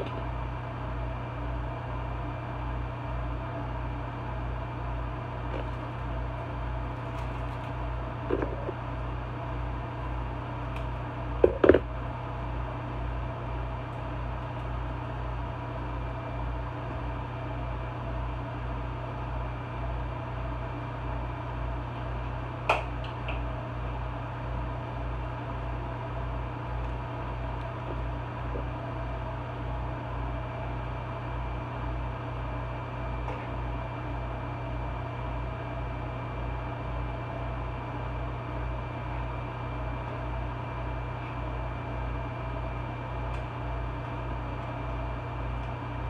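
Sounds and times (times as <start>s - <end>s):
fan motor humming: 0.0s - 46.0s.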